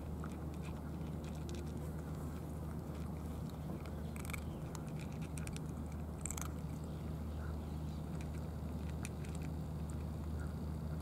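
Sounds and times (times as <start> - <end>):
cats crunching kibble: 0.0 - 11.0
low mechanical hum: 0.0 - 11.0.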